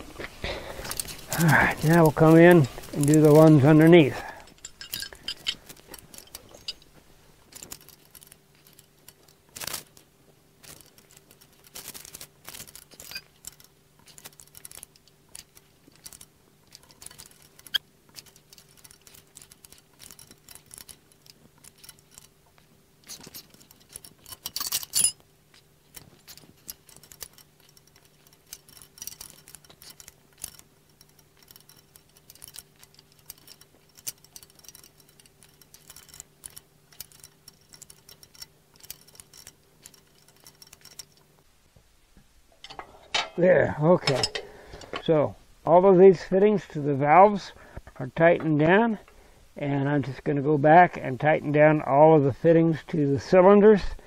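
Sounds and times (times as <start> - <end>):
wrench clicking on metal fittings: 0.8 - 6.9, 10.6 - 22.4, 23.0 - 41.3.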